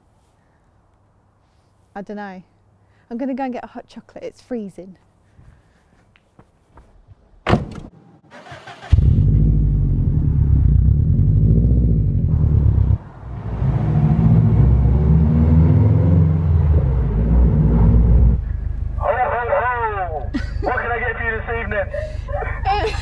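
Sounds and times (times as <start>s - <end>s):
car engine starting and revving: 8.3s - 18.5s.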